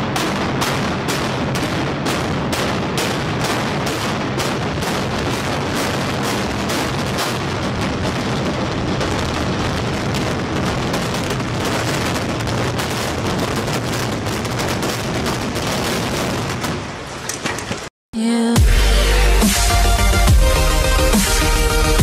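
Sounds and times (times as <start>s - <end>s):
loud music with fast beat: 18.6s - 22.0s.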